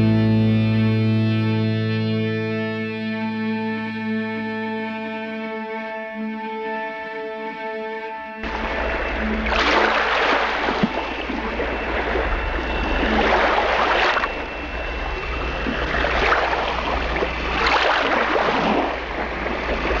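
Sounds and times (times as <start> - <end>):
steady low rumble: 8.4 - 20.0
waves washing on beach: 8.4 - 20.0.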